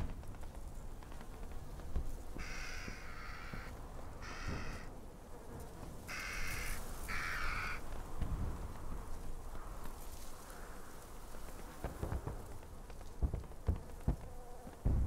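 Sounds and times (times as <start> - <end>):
crow cawing: 2.4 - 4.9, 6.1 - 8.0, 9.5 - 11.1.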